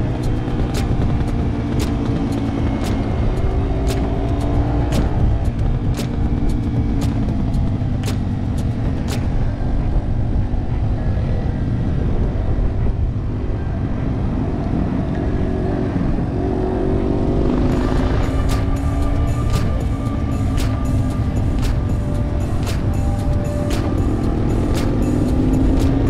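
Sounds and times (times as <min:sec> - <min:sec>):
motorcycle engine running: 0:00.0 - 0:26.0
wind rumble on microphone: 0:00.0 - 0:26.0.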